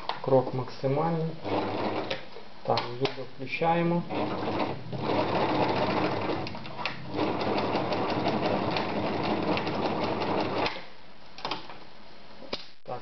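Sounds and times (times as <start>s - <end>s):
sewing machine clattering: 1.4s - 3.2s, 3.9s - 10.9s.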